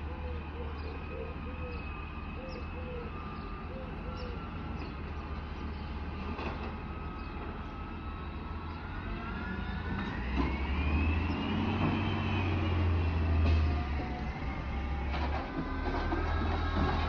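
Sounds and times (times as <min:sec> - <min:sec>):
garbage truck diesel engine rumbling: 0:00.0 - 0:17.0
rising and falling whine: 0:06.9 - 0:17.0.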